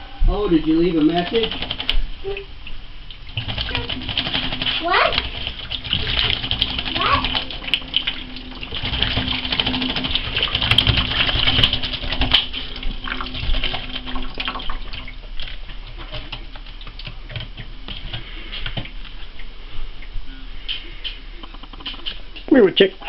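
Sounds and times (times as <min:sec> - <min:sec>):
faucet water splashing in sink: 0:00.9 - 0:19.5
bird splashing in water: 0:03.2 - 0:19.0.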